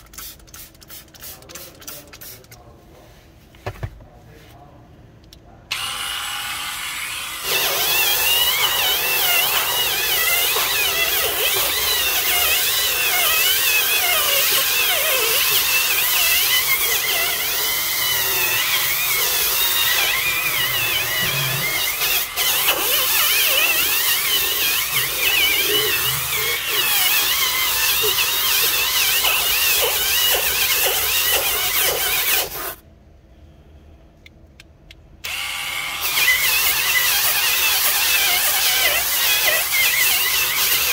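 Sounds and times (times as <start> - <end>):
power scrubber motor whine: 5.8 - 13.9, 16.4 - 30.4.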